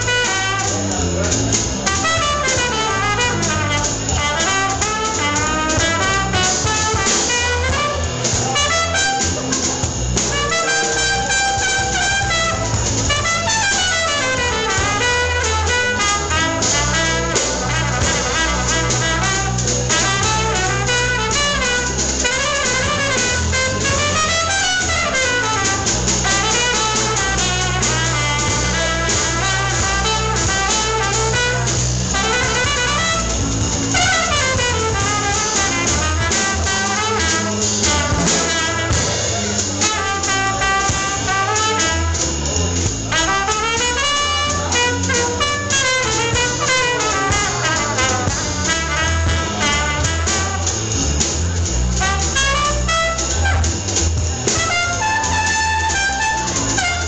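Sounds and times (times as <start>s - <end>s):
drum kit: 0.0s - 57.0s
trumpet melody: 0.0s - 57.0s.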